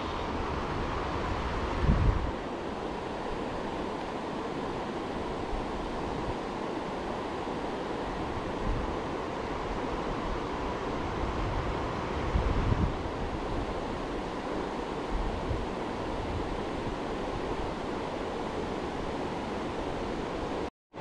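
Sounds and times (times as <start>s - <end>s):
wind buffeting microphone: 0.0s - 2.4s, 9.6s - 13.8s
river water rushing: 0.0s - 20.7s.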